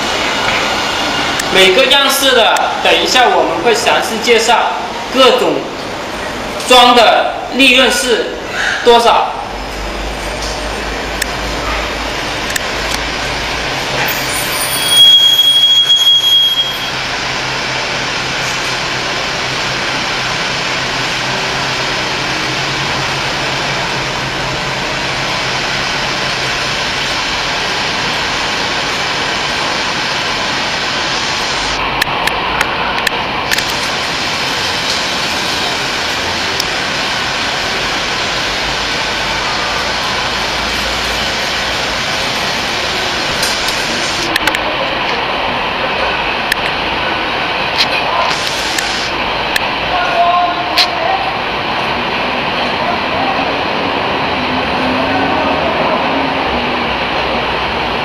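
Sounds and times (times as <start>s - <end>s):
popcorn machine hissing and humming: 9.0s - 49.8s
burst with high whistle: 14.0s - 17.0s.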